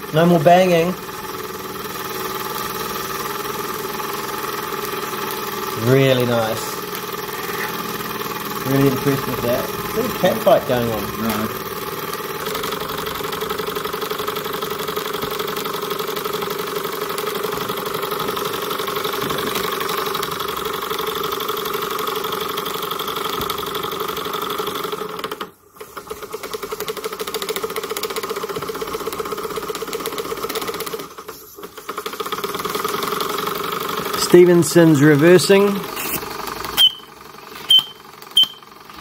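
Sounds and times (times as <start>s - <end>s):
model steam engine running: 0.0s - 39.0s.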